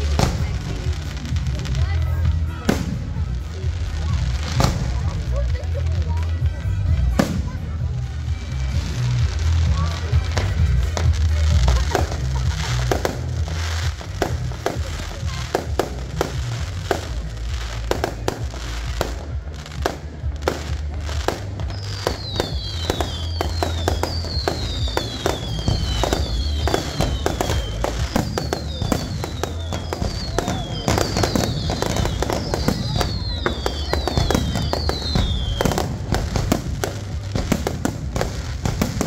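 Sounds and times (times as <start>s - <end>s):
fireworks bangs and crackles: 0.0s - 39.0s
music with bass line: 0.0s - 39.0s
falling firework whistles: 21.6s - 37.0s.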